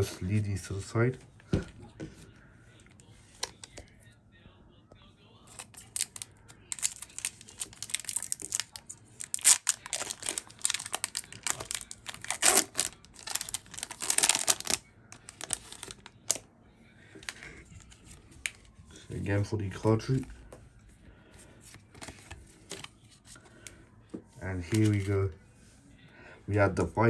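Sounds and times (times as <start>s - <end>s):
foil wrapper crinkling and tearing: 5.5s - 16.4s.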